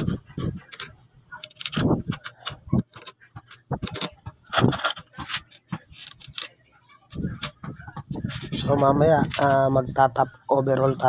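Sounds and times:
metallic clicks of screws: 0.6s - 7.6s.

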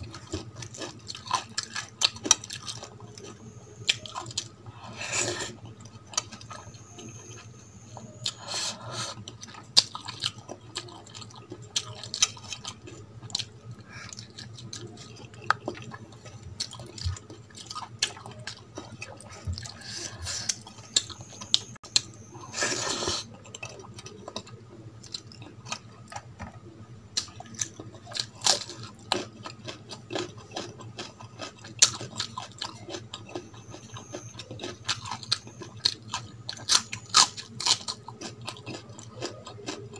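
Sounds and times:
wet chewing and mouth clicks: 9.1s - 22.1s, 27.2s - 39.9s.

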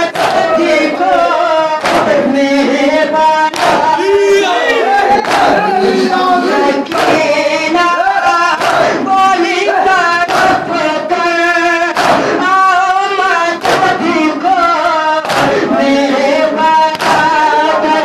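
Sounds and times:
voices chanting along: 0.0s - 18.0s
chest-beating slaps: 0.1s - 0.5s, 1.8s - 2.3s, 3.5s - 4.1s, 5.2s - 5.6s, 6.8s - 7.4s, 8.6s - 9.1s, 10.3s - 10.8s, 11.9s - 12.5s, 13.6s - 14.2s, 15.2s - 15.8s, 16.9s - 17.4s.

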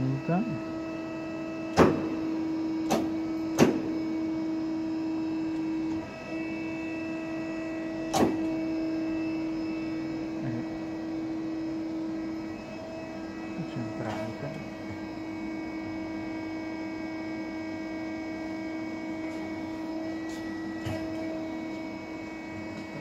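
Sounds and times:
lathe humming: 0.0s - 23.0s
sharp machine clunks: 1.7s - 2.2s, 2.8s - 3.9s, 8.1s - 8.5s.

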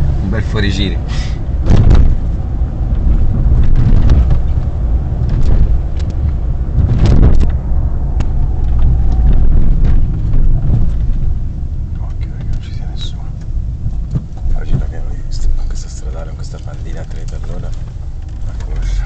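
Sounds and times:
car engine and road noise: 0.0s - 19.0s
knocks from bumps: 1.6s - 2.3s, 2.9s - 7.6s, 8.2s - 11.4s.

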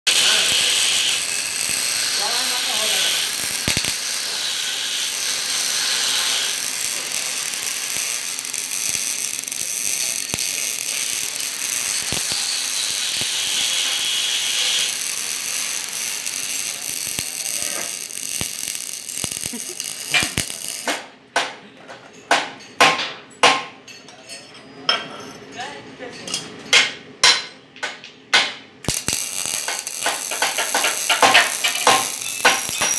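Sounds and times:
arc welding crackling: 0.1s - 21.1s, 28.3s - 32.9s.

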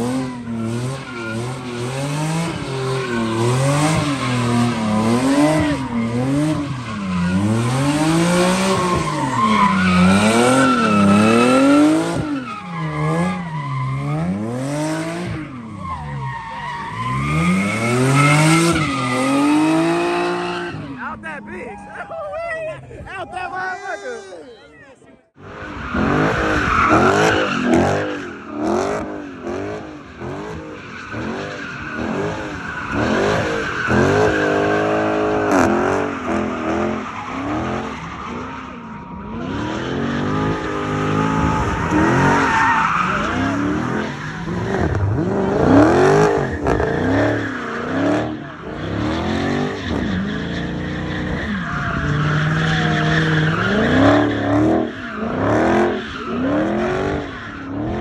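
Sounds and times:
car engine revving: 0.0s - 21.5s, 25.4s - 58.0s
tyres squealing on pavement: 0.0s - 58.0s.

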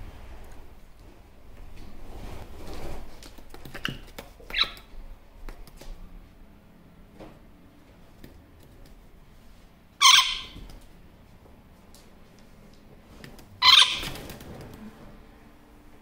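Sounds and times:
parrot chirping: 4.4s - 4.9s, 10.0s - 10.6s, 13.6s - 14.2s
harsh parrot call: 10.0s - 10.6s, 13.6s - 14.2s.

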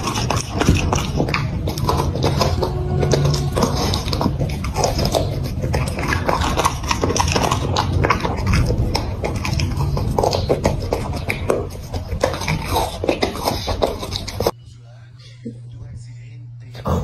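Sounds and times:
low rumble: 0.0s - 12.4s
dog chewing crunchy vegetable: 0.0s - 14.6s.

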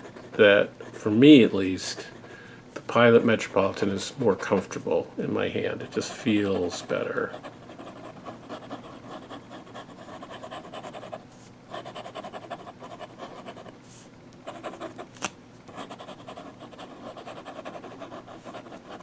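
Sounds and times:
pen nib scratching paper: 0.0s - 1.2s, 5.8s - 13.8s, 14.4s - 15.1s, 15.7s - 19.0s.

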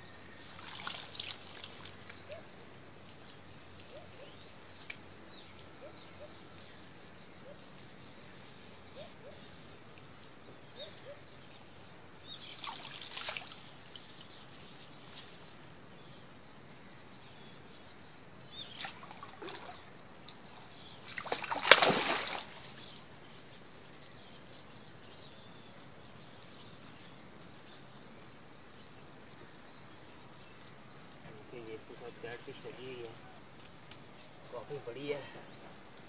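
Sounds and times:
water splashing and sloshing: 0.6s - 2.2s, 12.5s - 13.7s, 18.8s - 19.9s, 21.0s - 22.9s
sharp water slap: 21.1s - 22.6s.

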